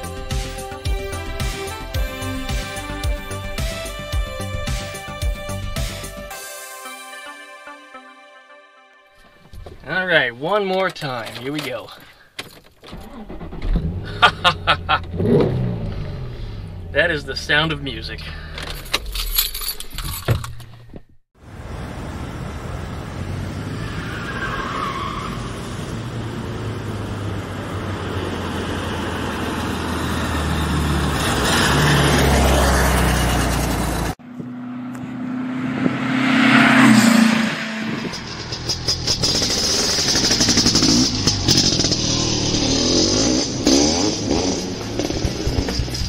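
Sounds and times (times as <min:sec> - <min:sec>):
car engine driving: 0:09.4 - 0:46.0.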